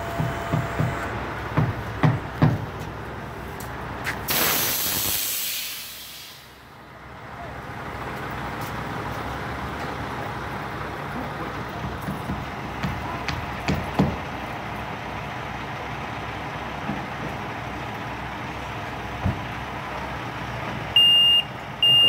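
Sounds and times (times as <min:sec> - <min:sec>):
air brakes hissing: 0:04.3 - 0:06.7.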